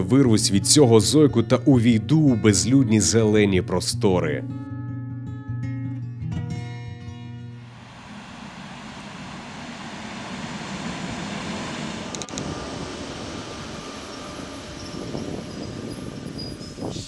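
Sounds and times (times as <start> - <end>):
electric train rumbling: 7.6 - 17.0
faint high whine: 7.6 - 17.0
brief clicking: 12.1 - 12.5.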